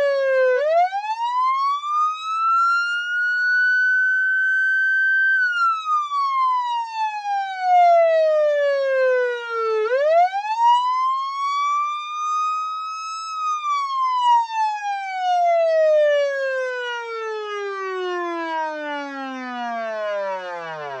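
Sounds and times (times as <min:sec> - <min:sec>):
police siren wailing: 0:00.0 - 0:21.0.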